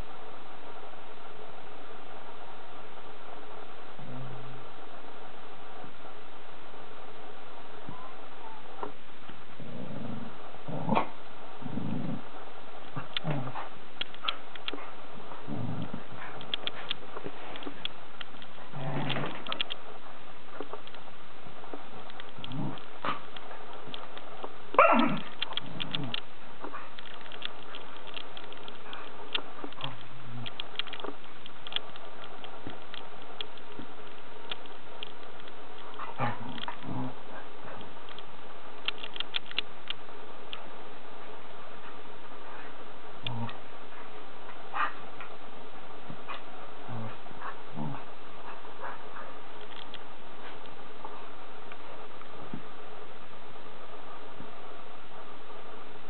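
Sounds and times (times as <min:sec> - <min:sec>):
dog growling playfully: 0:09.5 - 0:12.3, 0:12.9 - 0:17.4, 0:18.6 - 0:19.7, 0:22.4 - 0:23.3, 0:24.8 - 0:27.0, 0:35.9 - 0:38.0, 0:42.6 - 0:45.3, 0:46.2 - 0:49.5
clicks and rustles on bedding: 0:10.8 - 0:45.4.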